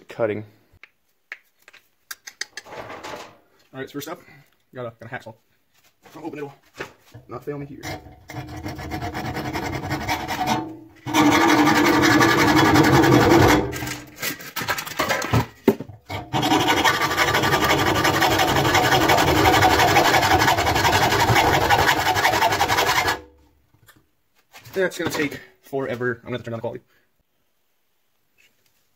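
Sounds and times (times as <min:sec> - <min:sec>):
knocks and scrapes: 0:02.6 - 0:03.6, 0:05.7 - 0:25.4
hacksaw cutting sheet metal: 0:07.8 - 0:14.2, 0:16.1 - 0:23.3.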